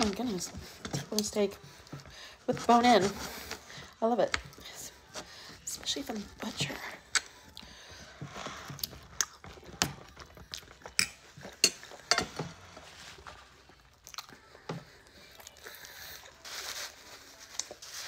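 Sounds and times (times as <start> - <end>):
person chewing: 8.6 - 12.1, 13.6 - 15.7.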